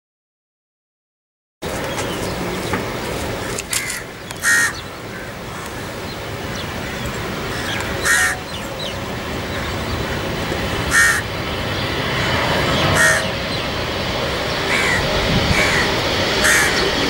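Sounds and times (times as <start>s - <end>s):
jet engines rumbling: 1.6s - 17.0s
crow cawing: 3.7s - 6.0s, 6.8s - 10.2s, 10.8s - 11.4s, 12.2s - 13.6s, 14.7s - 17.0s.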